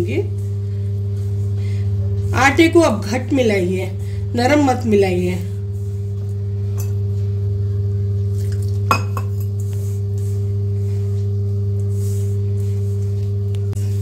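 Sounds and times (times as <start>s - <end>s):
low hum of held tones: 0.0s - 14.0s
hand clinking steel bowl: 6.7s - 7.0s, 8.4s - 9.7s.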